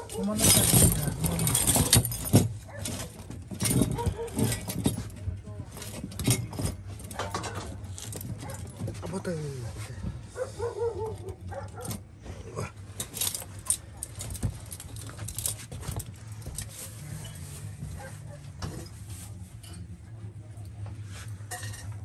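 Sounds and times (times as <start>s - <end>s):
clicks and knocks of handling: 0.0s - 9.1s.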